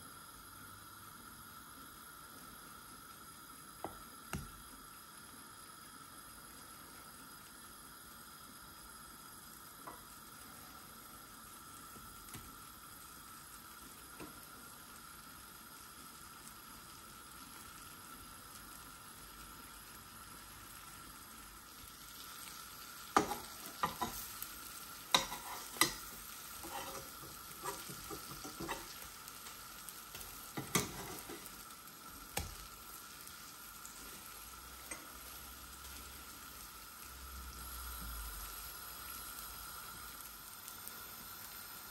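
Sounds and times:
bread sizzling in butter: 0.0 - 41.9
wooden spatula scraping pan: 23.2 - 24.2, 25.1 - 29.1, 30.5 - 31.6.

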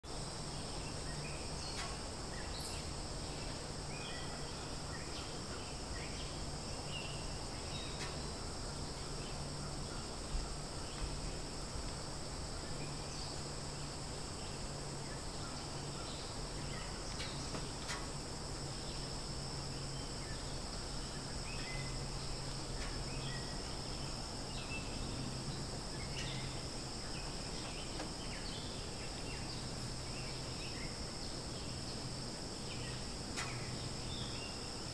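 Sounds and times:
forest insects droning: 0.0 - 34.9
low steady hum: 0.1 - 34.9.

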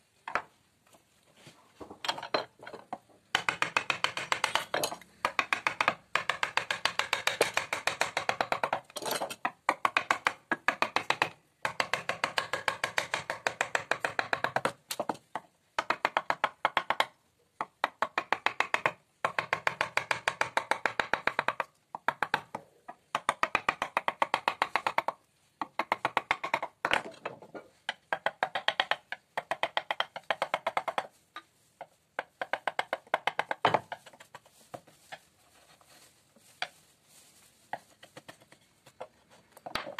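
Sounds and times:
mallet tapping chisel into wood: 3.3 - 8.9, 9.6 - 27.0, 27.9 - 31.1.

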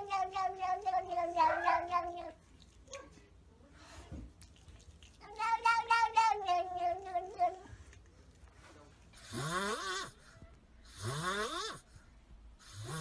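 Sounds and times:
cat meowing: 0.0 - 2.4, 5.3 - 7.7
kitten raspy calls: 0.0 - 2.4.

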